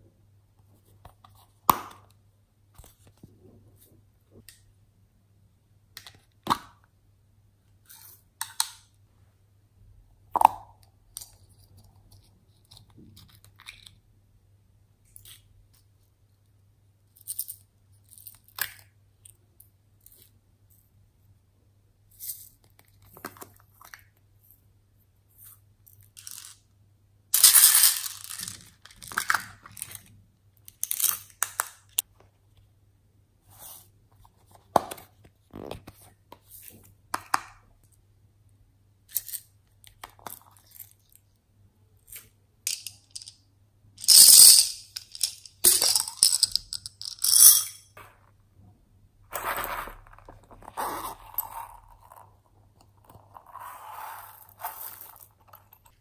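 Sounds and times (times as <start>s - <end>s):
beads and glitter pouring: 27.4s - 28.9s, 44.0s - 47.6s, 53.9s - 55.4s.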